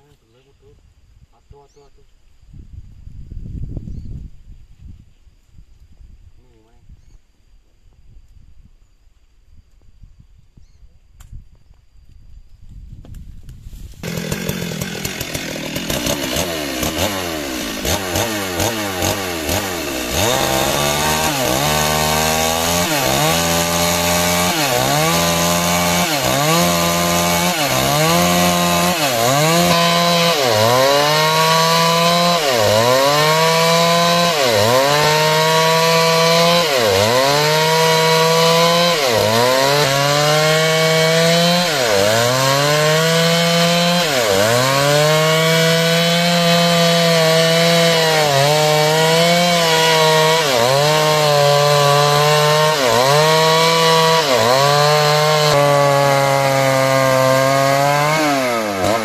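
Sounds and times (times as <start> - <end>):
chainsaw cutting timber: 13.7 - 59.0.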